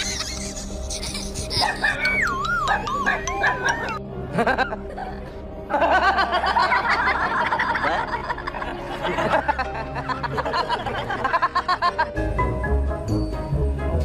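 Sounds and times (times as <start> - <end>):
background music: 0.0 - 14.0
man laughing heartily: 4.2 - 12.1.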